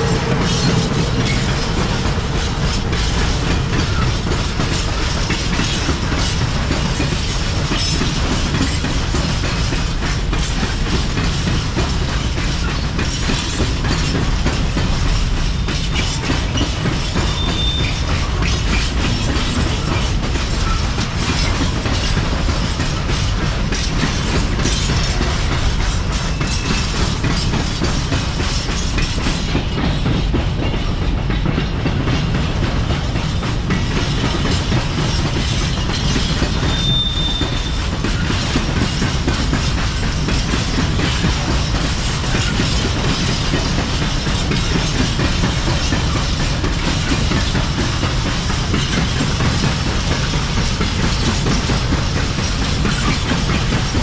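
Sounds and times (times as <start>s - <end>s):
train wheels clattering: 0.0s - 54.0s
short high squeal: 36.7s - 37.8s.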